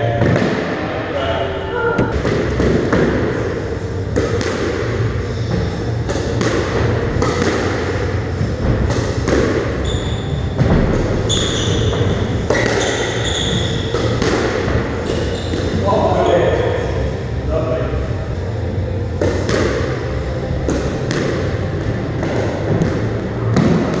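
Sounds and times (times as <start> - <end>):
squash ball hits echoing: 0.1 - 0.9, 1.9 - 16.3, 19.0 - 24.0
shoes squeaking on wooden floor: 9.8 - 10.6, 11.2 - 13.9, 15.0 - 15.8.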